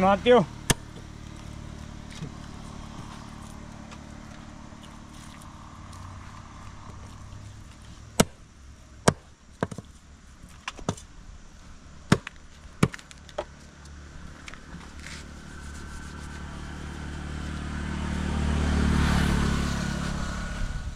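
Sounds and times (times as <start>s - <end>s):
passing vehicle engine: 0.0s - 8.5s, 13.7s - 20.9s.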